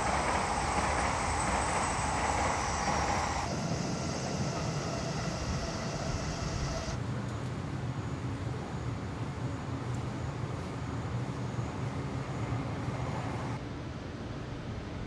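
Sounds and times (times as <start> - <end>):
steam locomotive hissing: 0.0 - 7.0.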